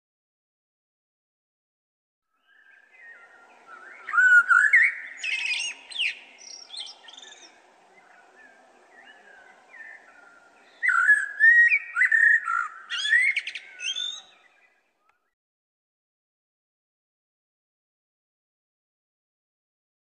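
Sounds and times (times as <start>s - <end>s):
blackbird singing: 2.3s - 15.3s.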